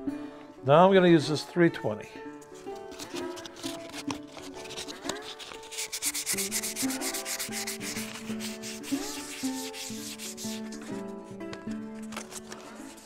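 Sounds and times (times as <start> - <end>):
background music: 0.0 - 13.0
sandpaper scratching on stone: 2.7 - 11.0.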